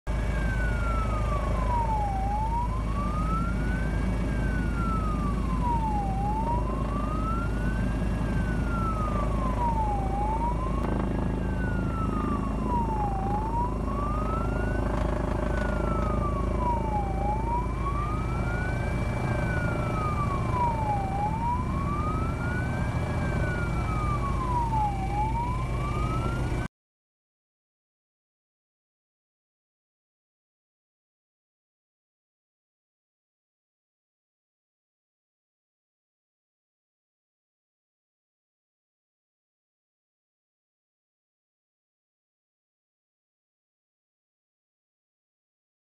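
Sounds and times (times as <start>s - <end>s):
police siren wailing: 0.1s - 26.7s.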